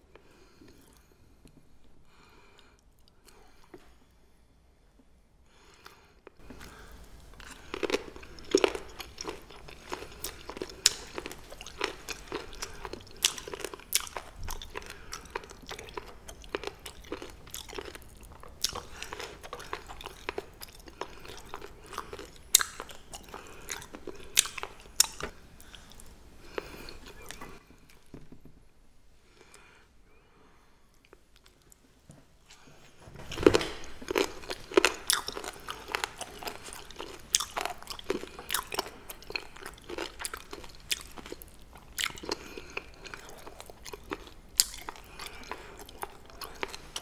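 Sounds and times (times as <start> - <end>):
crisp crunches of chewing: 6.3 - 28.0, 32.5 - 47.0.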